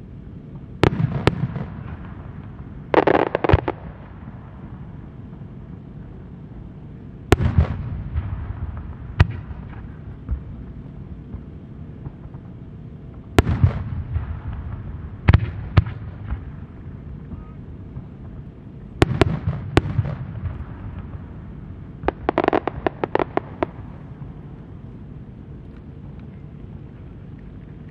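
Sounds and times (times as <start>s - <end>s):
low rumbling echo: 0.0s - 27.9s
fireworks bangs: 0.8s - 4.3s, 7.3s - 10.6s, 11.2s - 18.4s, 19.0s - 24.4s.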